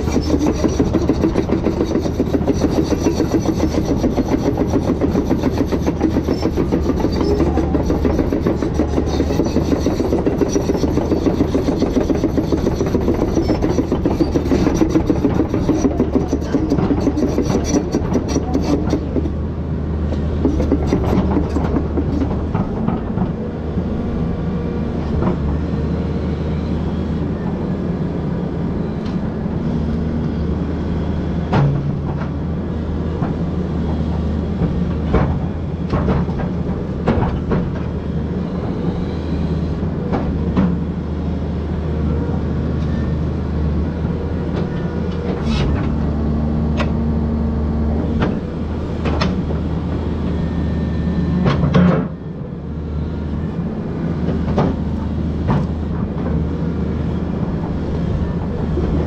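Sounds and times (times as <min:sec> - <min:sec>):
machine knocks and clanks: 0:00.0 - 0:19.4, 0:20.1 - 0:23.4, 0:31.5 - 0:32.4, 0:33.2 - 0:38.0, 0:54.3 - 0:56.4
excavator diesel engine running: 0:00.0 - 0:59.0.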